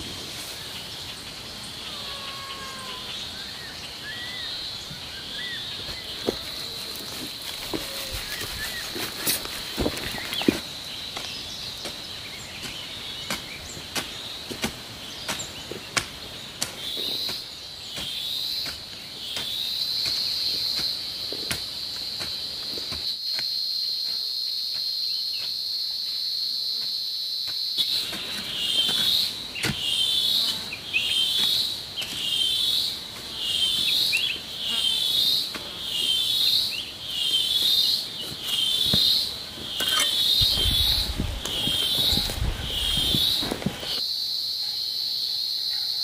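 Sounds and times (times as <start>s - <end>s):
shrill insect buzzing and chirping: 1.7s - 3.4s
hoe knocking in soil: 5.8s - 12.0s, 37.6s - 44.0s.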